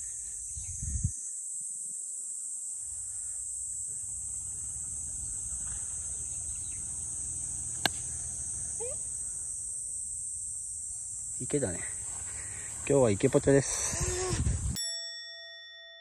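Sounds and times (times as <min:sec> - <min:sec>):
insects chirring: 0:00.0 - 0:14.8
golf club striking ball: 0:07.7 - 0:08.2.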